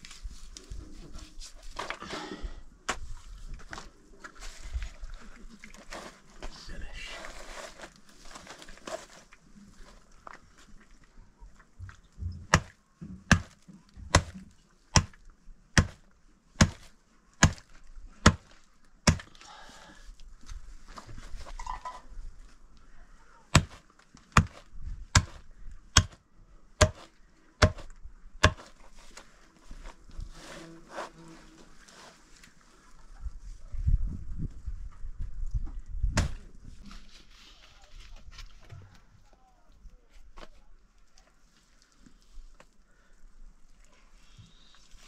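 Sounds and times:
hatchet chopping meat: 12.5 - 12.7, 13.3 - 14.4, 15.0 - 15.2, 15.8 - 16.0, 16.6 - 19.4, 23.5 - 23.8, 24.4 - 25.4, 26.0 - 26.2, 26.8 - 28.7.

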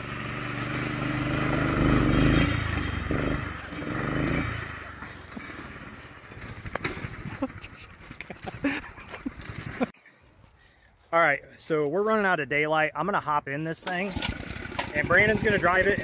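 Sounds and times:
small go-kart engine running: 0.0 - 8.5, 14.0 - 16.0.

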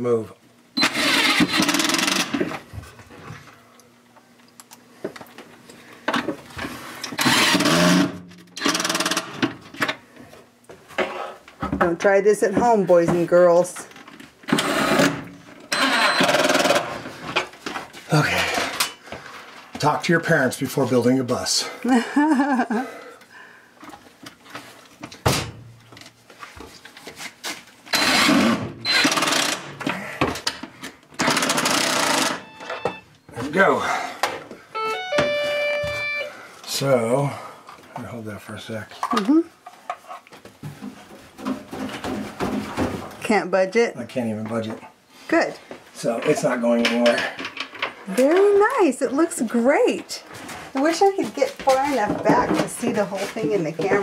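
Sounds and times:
impact driver driving screws: 0.8 - 2.4, 7.2 - 9.5, 14.5 - 17.0, 27.9 - 29.8, 31.2 - 33.0
cordless drill motor whine: 7.2 - 9.2, 15.7 - 16.9, 27.9 - 29.6, 31.2 - 33.0.

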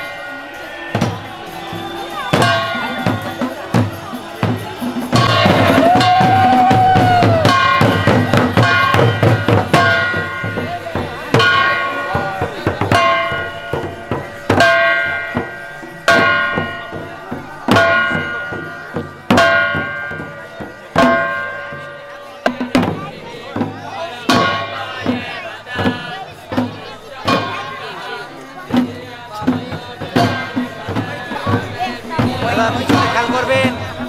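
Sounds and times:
bell ringing: 0.0 - 22.6
drums playing: 0.0 - 34.0
hand cymbals playing: 0.0 - 34.0.

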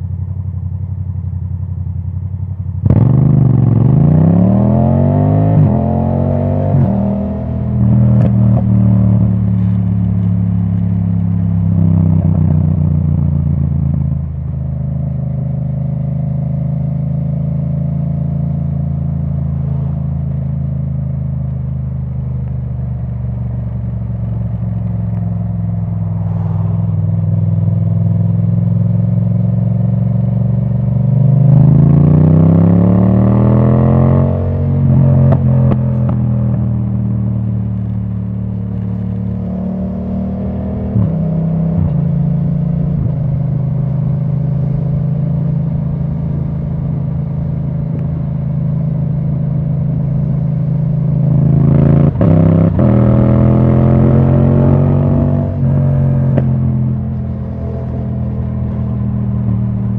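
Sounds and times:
motorcycle engine revving: 2.8 - 14.2, 24.0 - 59.9.

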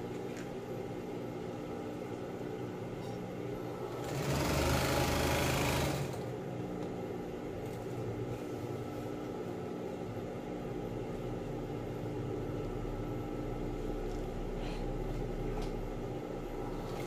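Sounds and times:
steady low hum: 0.0 - 4.4, 5.9 - 17.0
industrial sewing machine stitching: 3.8 - 6.3.

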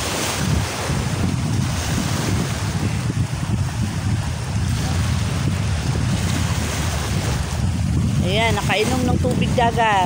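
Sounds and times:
small sea waves: 0.0 - 10.0
wind across microphone: 0.0 - 10.0.

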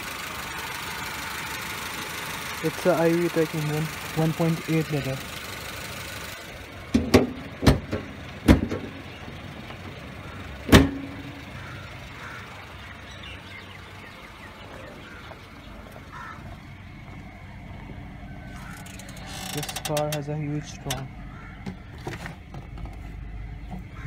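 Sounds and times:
car engine idling: 0.0 - 24.0
car hood slamming shut: 6.9 - 8.9, 10.7 - 11.3.

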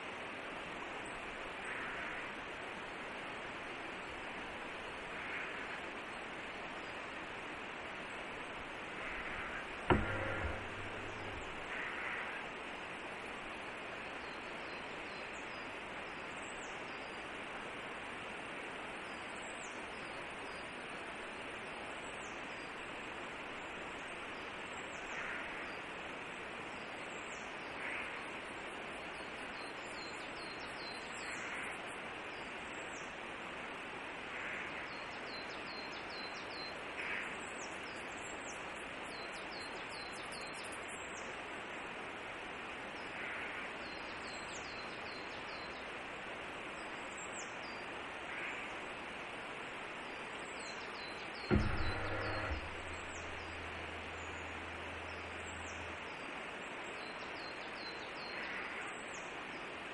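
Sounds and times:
outdoor hiss: 0.0 - 59.9
thump: 9.1 - 11.8, 51.5 - 56.0
camera motor hum: 51.5 - 55.8.

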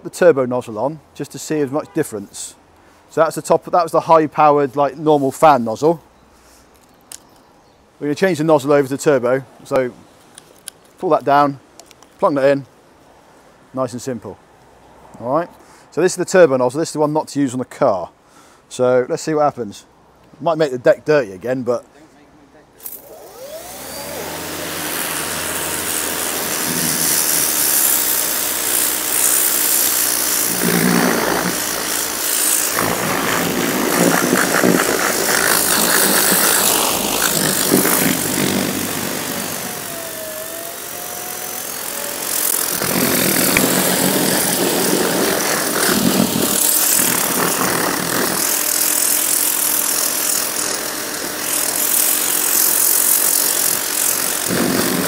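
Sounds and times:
pump humming: 23.0 - 49.7
pressure washer jet spraying metal: 24.7 - 55.0.

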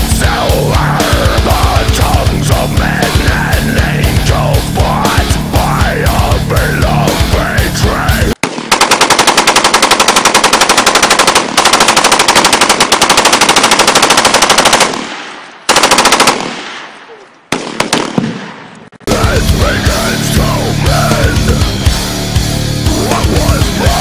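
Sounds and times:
rifle firing full auto: 8.4 - 18.7.

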